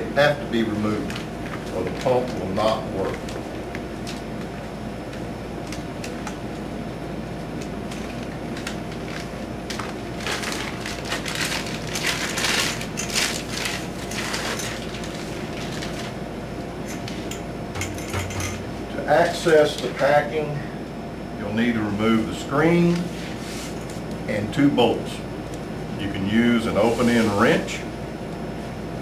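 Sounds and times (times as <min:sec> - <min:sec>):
plastic bag crinkling: 0:01.0 - 0:04.3, 0:07.8 - 0:16.2.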